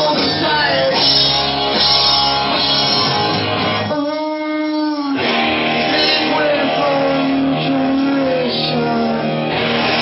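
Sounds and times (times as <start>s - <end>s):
live rock band playing: 0.0s - 10.0s.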